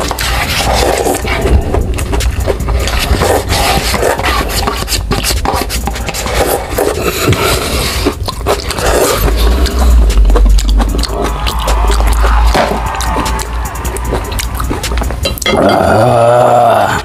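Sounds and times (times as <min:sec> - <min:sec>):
chopsticks scraping in paper cup: 0:00.0 - 0:09.5
close-up eating sounds: 0:00.0 - 0:17.0.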